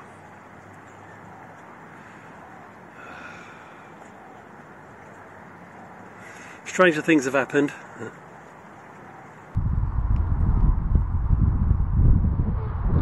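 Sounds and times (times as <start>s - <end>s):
outdoor background hiss: 0.0s - 9.6s.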